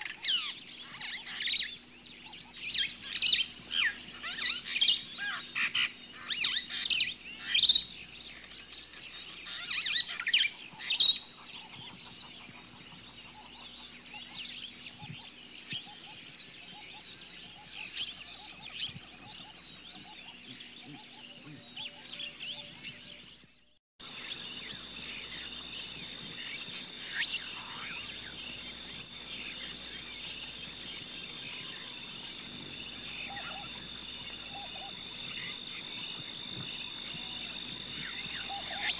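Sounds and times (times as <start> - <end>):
wild birds chirping and singing: 0.0 - 38.9
pulsing high-pitched animal chorus: 24.0 - 38.9.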